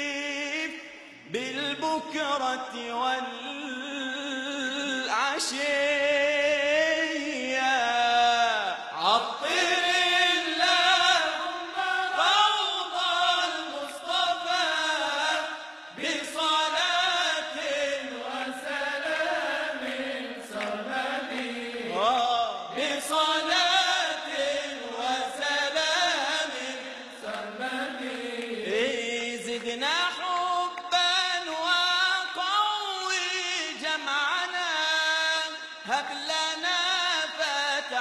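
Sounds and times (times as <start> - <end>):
man singing a religious chant: 0.0 - 38.0.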